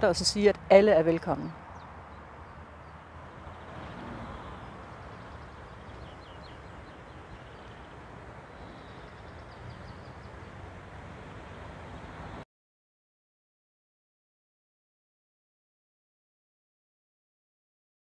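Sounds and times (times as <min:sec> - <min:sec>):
small birds chirping: 0:01.3 - 0:10.6.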